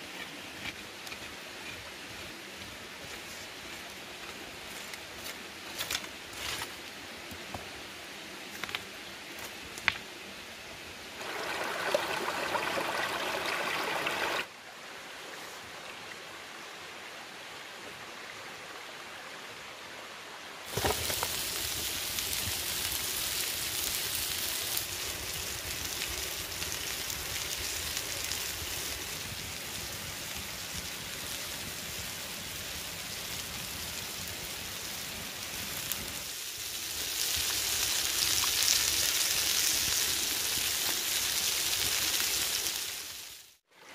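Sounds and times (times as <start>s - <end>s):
shrimp sizzling on hot stone: 20.7s - 32.6s, 33.3s - 43.6s
wood fire crackling: 20.7s - 43.4s.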